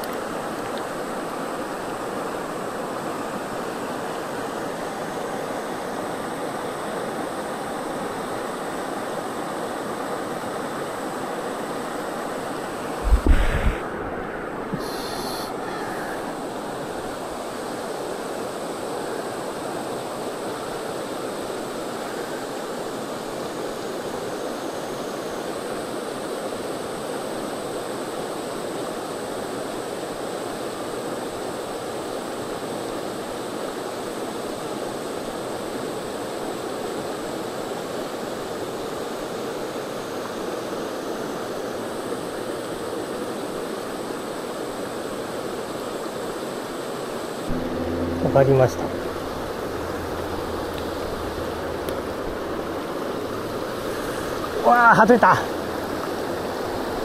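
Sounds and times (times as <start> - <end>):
river water rushing over stones: 52.7 - 57.0.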